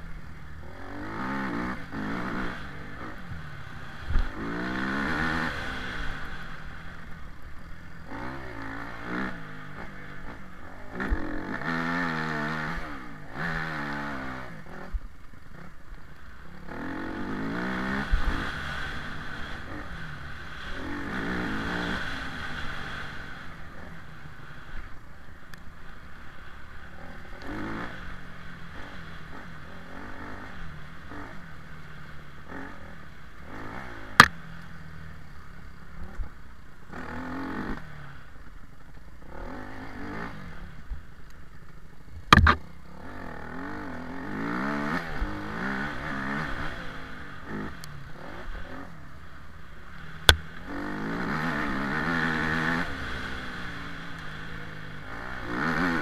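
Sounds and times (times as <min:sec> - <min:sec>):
off-road vehicle engine revving: 0:00.6 - 0:03.2, 0:03.9 - 0:06.8, 0:08.0 - 0:15.8, 0:16.6 - 0:24.0, 0:27.0 - 0:34.4, 0:39.2 - 0:40.8, 0:42.2 - 0:49.0, 0:50.2 - 0:56.0.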